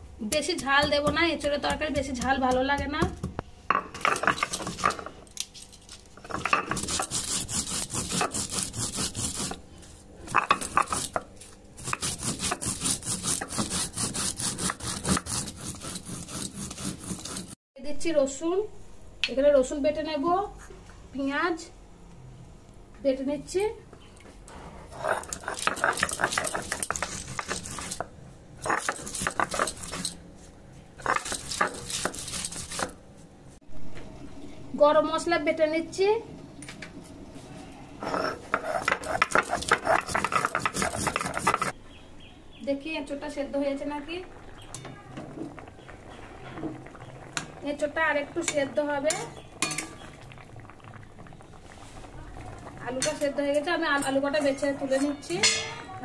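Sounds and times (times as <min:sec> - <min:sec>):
stone grinding on stone: 0:06.2 - 0:09.6, 0:10.3 - 0:17.6, 0:24.9 - 0:30.2, 0:31.0 - 0:33.0, 0:38.0 - 0:41.8.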